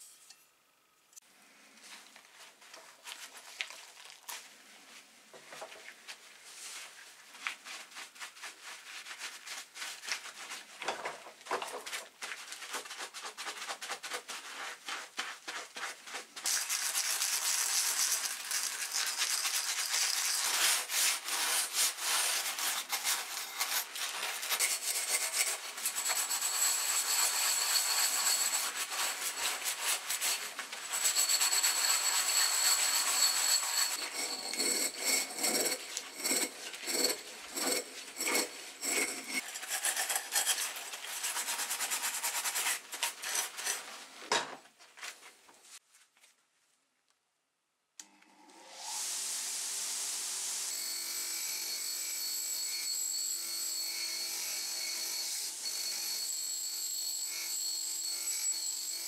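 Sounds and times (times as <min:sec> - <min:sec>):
sponge scrubbing metal: 0:12.4 - 0:43.9
thin high squeak: 0:22.2 - 0:39.4.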